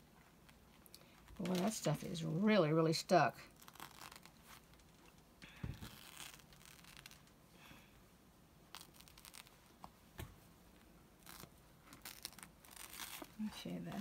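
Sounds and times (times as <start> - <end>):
fabric pieces peeled off sheet: 3.5 - 7.4, 8.7 - 9.8, 11.2 - 14.0.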